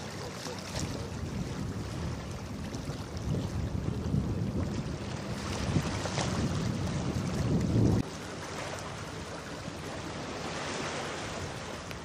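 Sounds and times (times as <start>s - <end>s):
wind buffeting microphone: 0.0s - 8.1s
hiss of wind and water: 0.0s - 12.0s.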